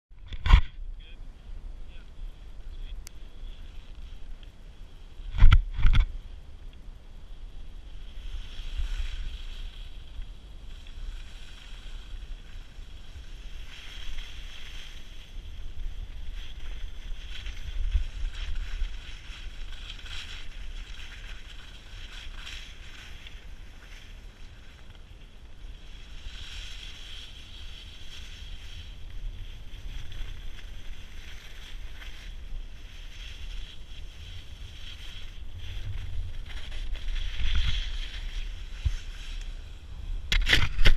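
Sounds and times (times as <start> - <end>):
wind buffeting microphone: 0.2 - 40.9
skis hissing on snow: 7.8 - 24.9, 25.6 - 40.2.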